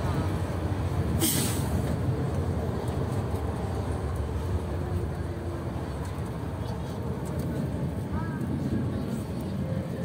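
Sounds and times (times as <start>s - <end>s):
tram low rumble: 0.0s - 10.0s
short hiss: 1.2s - 1.7s.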